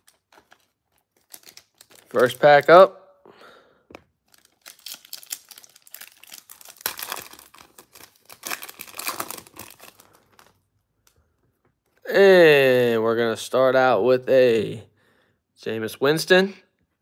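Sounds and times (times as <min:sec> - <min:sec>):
foil pack torn open: 0:00.0 - 0:02.4, 0:04.3 - 0:10.6
foil wrapper crinkling: 0:00.0 - 0:02.6, 0:04.2 - 0:10.6.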